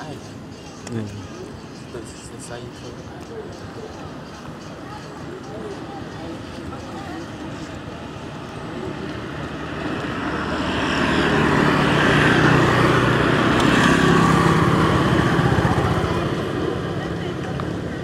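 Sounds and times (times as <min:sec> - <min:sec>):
vehicle engine passing: 0:07.4 - 0:18.0.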